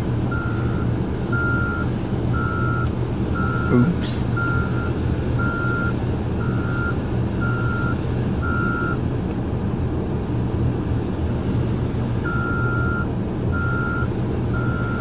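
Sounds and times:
diesel engine running: 0.0s - 15.0s
reverse alarm beeping: 0.3s - 2.8s, 3.4s - 9.0s, 12.2s - 15.0s.

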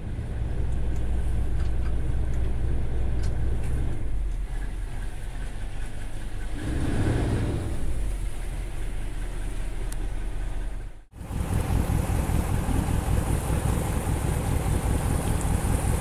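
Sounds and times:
boat engine running: 0.0s - 16.0s
water rushing along hull: 0.0s - 16.0s
wind: 0.0s - 16.0s
water splashing: 3.6s - 16.0s.

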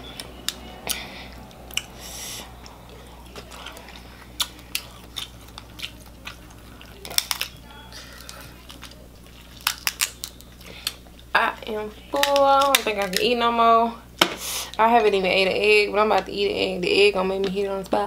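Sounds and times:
chewing: 0.1s - 11.3s
shrimp shells cracking: 3.4s - 11.2s, 12.1s - 13.3s.

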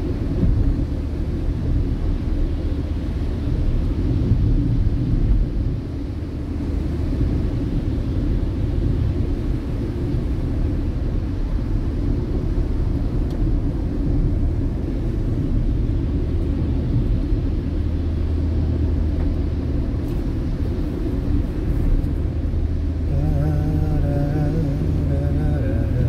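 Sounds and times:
car rumble from inside cabin: 0.0s - 26.0s
tyres on wet road: 0.0s - 26.0s.

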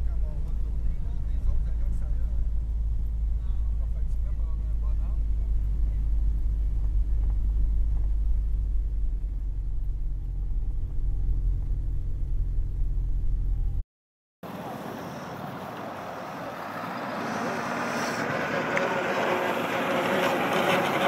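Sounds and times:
aircraft engine droning: 14.5s - 21.0s.

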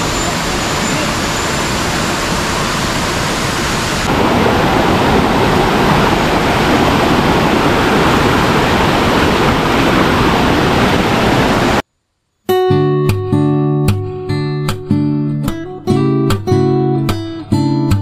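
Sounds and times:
rushing water: 0.0s - 11.8s.

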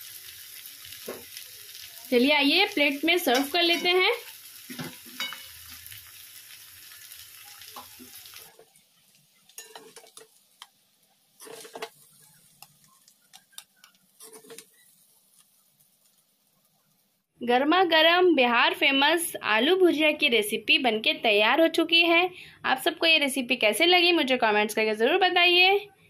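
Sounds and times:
food sizzling: 0.0s - 17.3s
metal spatula scraping and tapping: 3.3s - 4.0s, 4.7s - 5.6s, 9.4s - 10.8s, 11.4s - 15.5s.

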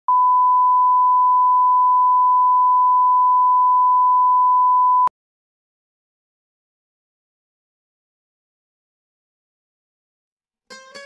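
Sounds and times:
high pure reference beep: 0.1s - 5.1s.

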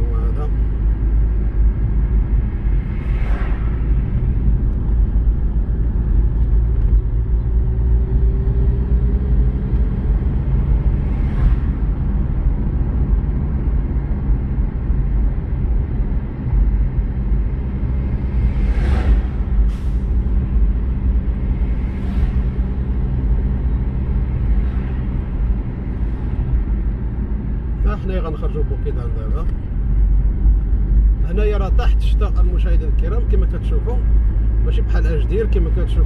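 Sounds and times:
car engine and road noise: 0.0s - 36.0s
brief whooshes: 2.8s - 4.2s, 18.5s - 20.5s.

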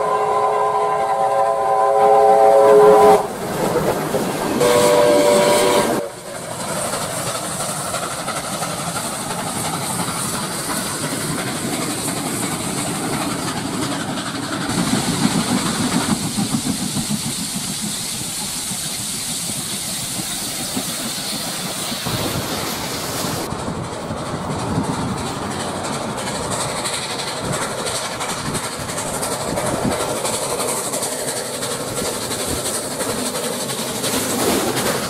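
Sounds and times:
hissing steam: 0.0s - 35.0s
steam locomotive passing: 0.0s - 35.0s
wheels clattering on rails: 3.2s - 35.0s.

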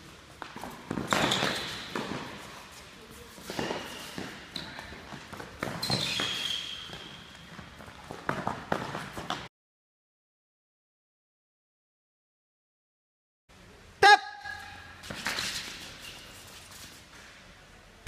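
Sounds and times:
shoes squeaking on court: 0.0s - 9.5s, 14.5s - 17.4s.

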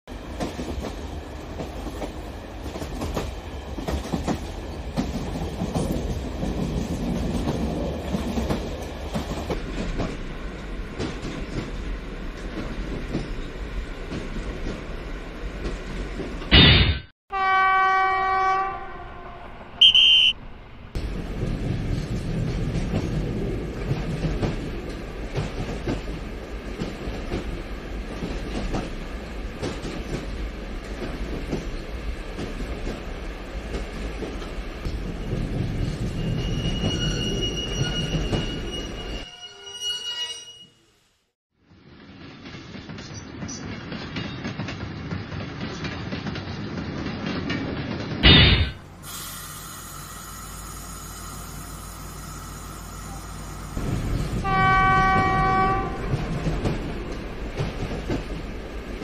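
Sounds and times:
train rumbling on rails: 0.1s - 16.6s, 17.3s - 39.6s, 41.6s - 59.0s
train horn: 17.3s - 20.4s, 52.9s - 56.4s
short high whistle: 19.8s - 20.4s.

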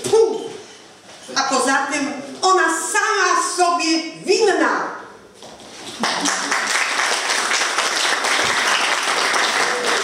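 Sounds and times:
audience applauding: 6.0s - 10.0s.

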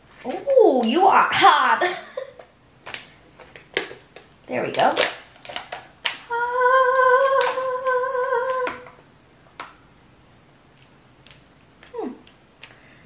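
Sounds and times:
woman humming: 6.3s - 9.0s, 11.8s - 12.3s.

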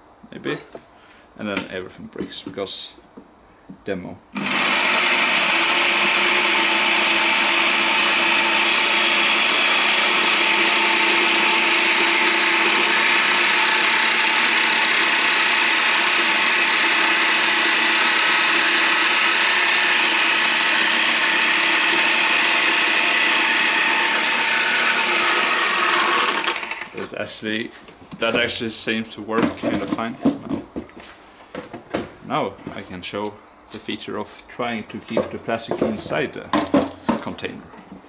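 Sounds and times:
jigsaw cutting acrylic sheet: 4.4s - 27.0s.

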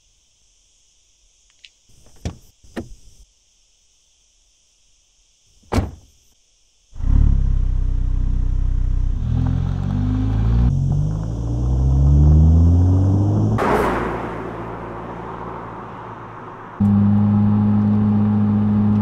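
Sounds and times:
thunk: 5.6s - 6.1s.

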